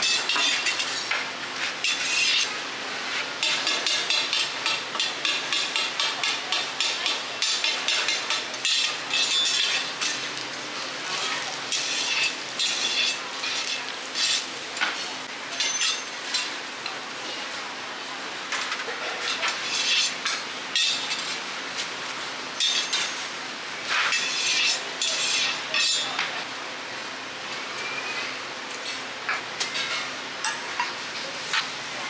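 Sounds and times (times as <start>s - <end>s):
metal spatula scraping pan: 1.8s - 2.5s, 6.8s - 10.3s, 11.2s - 14.4s, 19.3s - 20.2s, 24.0s - 26.0s
pancake sizzling in oil: 6.7s - 14.5s.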